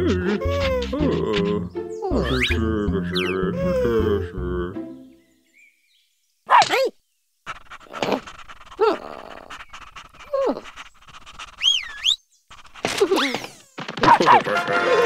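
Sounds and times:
cartoon dog calls: 0.0 - 4.2, 6.5 - 6.9, 12.9 - 14.7
cartoon bird whistle: 2.0 - 3.8, 11.5 - 12.2.

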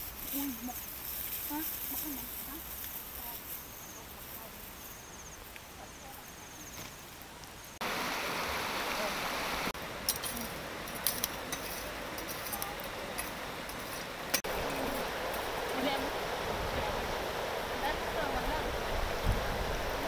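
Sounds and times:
faint insect chirping: 0.0 - 13.6
shallow river rushing: 7.8 - 20.0.

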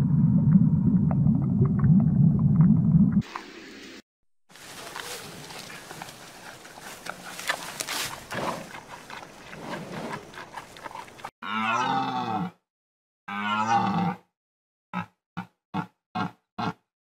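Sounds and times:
low crackling and rustling: 4.5 - 11.3
large animal bellowing: 5.0 - 12.6, 13.3 - 14.2.

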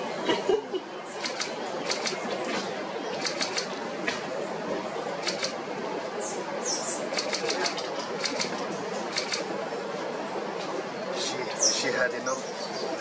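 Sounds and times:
camera shutter rapid clicks: 1.2 - 2.2, 3.2 - 3.7, 5.2 - 5.6, 7.1 - 9.5.

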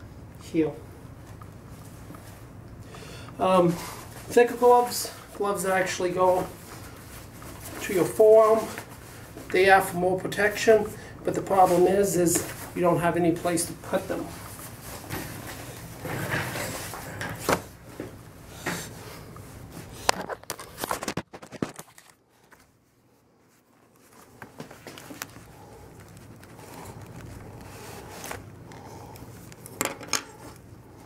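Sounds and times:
glove handling clicks and rustles: 19.3 - 31.0.

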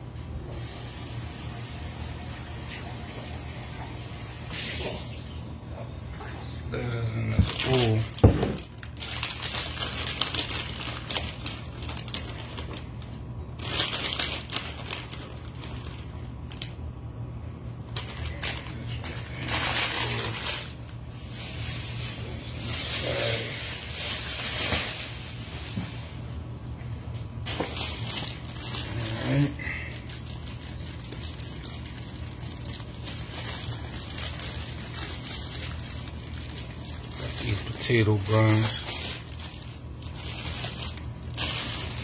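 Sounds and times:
steady low hum: 0.0 - 42.0
plastic packaging crinkling: 6.8 - 16.9, 17.8 - 26.4, 27.1 - 42.0.

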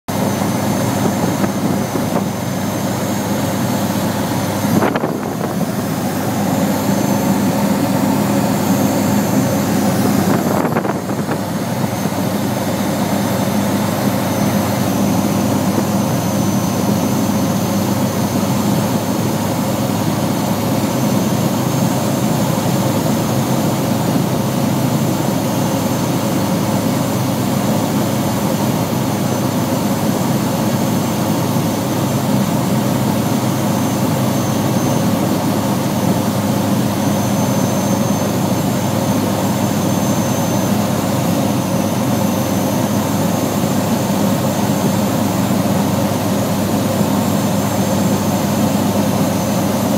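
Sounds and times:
light aircraft engine droning: 0.1 - 49.9
low hum: 0.2 - 20.3.

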